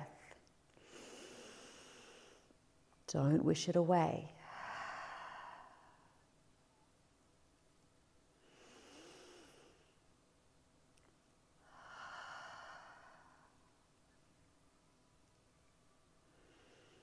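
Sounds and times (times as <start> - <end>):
woman breathing: 0.0 - 2.6, 4.3 - 6.4, 8.4 - 10.1, 11.6 - 14.0, 16.2 - 17.0.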